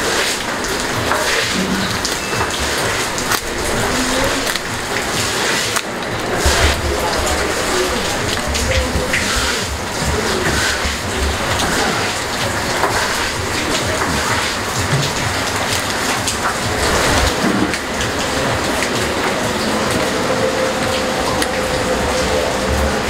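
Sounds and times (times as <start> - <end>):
steady rain falling: 0.0 - 23.0.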